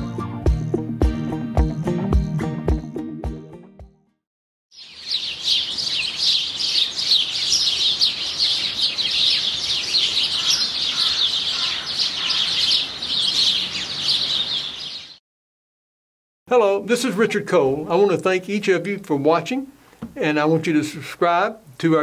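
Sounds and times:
songbirds chirping: 4.7 - 15.2.

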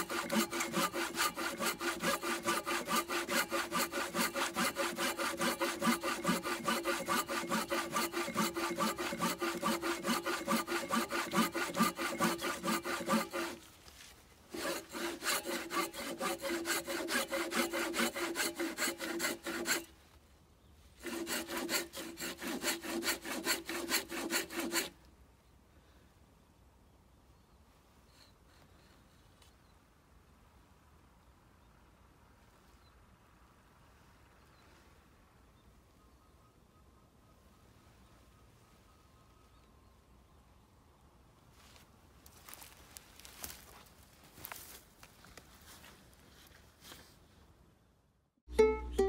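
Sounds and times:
pull saw rasping through timber: 0.0 - 13.7, 14.5 - 19.9, 21.0 - 25.0.

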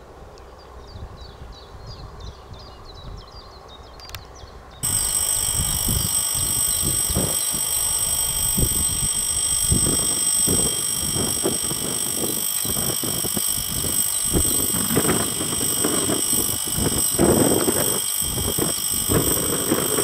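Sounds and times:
railway crossing alarm tone: 4.8 - 20.0
wind buffeting microphone: 4.8 - 20.0.

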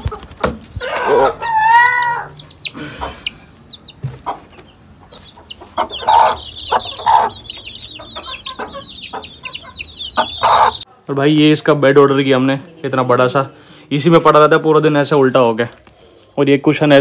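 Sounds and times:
hen clucking: 0.0 - 11.1
chicks peeping: 0.0 - 15.4
hen calling: 0.8 - 10.9.

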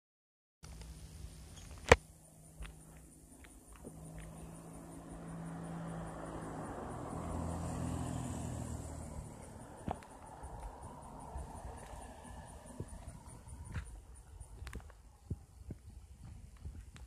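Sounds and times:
car driving past: 3.7 - 14.0.

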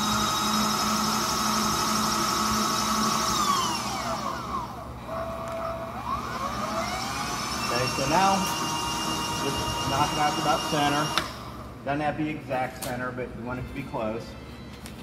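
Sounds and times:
electric motor and gear whine: 0.0 - 11.7.

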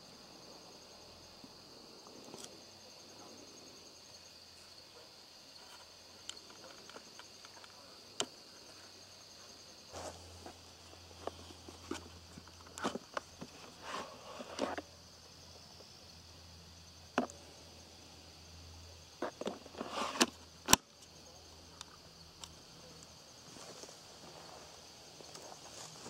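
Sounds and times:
faint insect trill: 0.0 - 26.0
battery latching snap: 20.2 - 20.9.

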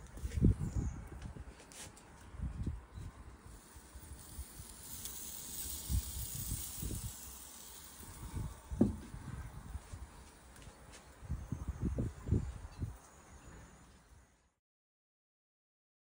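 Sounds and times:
soft hiss from hot grill: 3.0 - 12.5
low bumps: 8.0 - 12.9.

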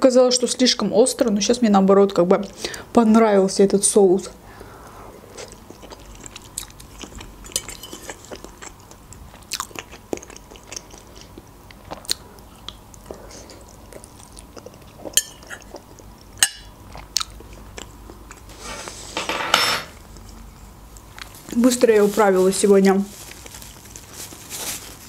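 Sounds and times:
person chewing wetly: 5.3 - 18.5
rustle: 21.3 - 25.0.

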